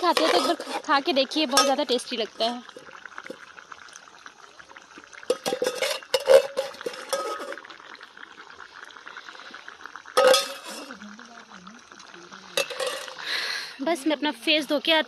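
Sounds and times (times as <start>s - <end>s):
steel utensils scraping a pan: 0.0s - 0.9s, 1.5s - 1.8s, 5.3s - 7.6s, 10.2s - 10.9s, 12.6s - 13.3s
utensil clatter: 0.0s - 2.0s, 5.3s - 7.7s, 10.2s - 10.9s, 12.6s - 13.3s.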